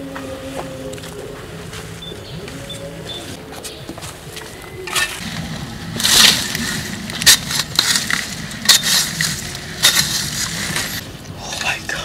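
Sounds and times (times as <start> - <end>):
digging tool scraping sandy soil: 5.0 - 11.0.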